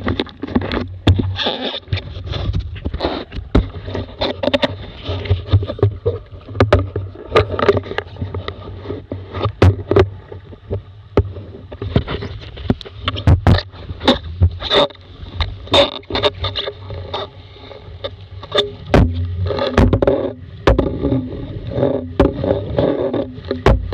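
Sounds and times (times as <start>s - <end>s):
wind rumble on microphone: 0.0s - 23.9s
sharp knocks on hull: 9.5s - 10.1s, 13.1s - 13.6s, 18.9s - 21.1s, 23.2s - 23.9s.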